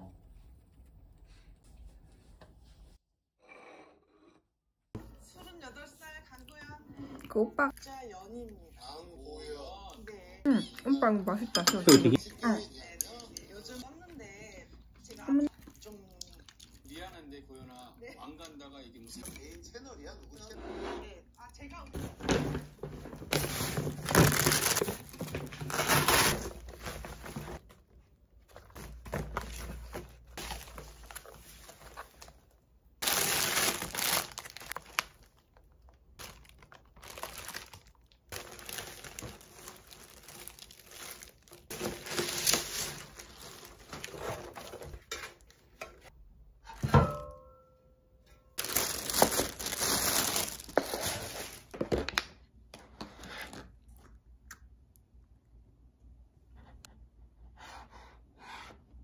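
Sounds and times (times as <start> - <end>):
plastic packaging crinkling and tearing: 23.2 - 27.6, 28.7 - 45.0, 48.6 - 51.8.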